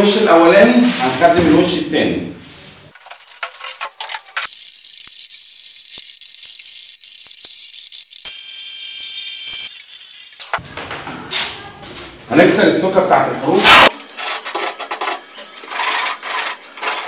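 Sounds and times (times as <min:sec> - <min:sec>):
power tool motor running: 0:04.5 - 0:10.6.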